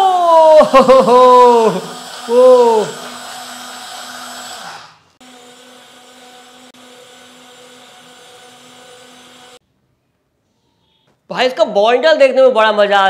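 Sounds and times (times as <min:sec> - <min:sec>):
blender motor humming: 0:00.0 - 0:09.6.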